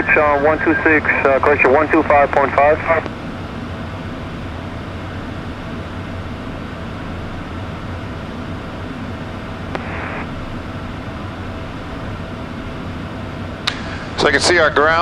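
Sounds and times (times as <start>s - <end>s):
radio hiss: 0.0s - 3.1s, 9.7s - 10.3s, 13.7s - 15.0s
jet engines droning: 0.0s - 15.0s
radio click: 9.7s - 10.2s, 13.7s - 13.9s.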